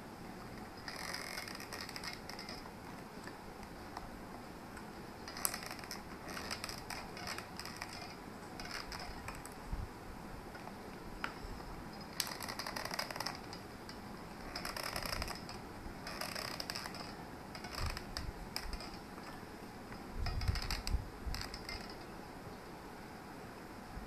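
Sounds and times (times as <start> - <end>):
glue gun clicking and ratcheting: 14.4 - 19.0.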